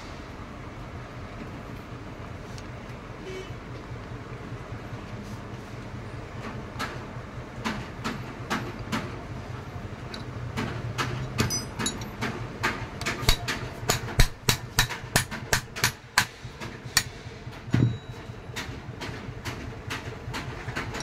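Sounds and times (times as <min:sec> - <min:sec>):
metal tools clinking: 0:11.2 - 0:12.3.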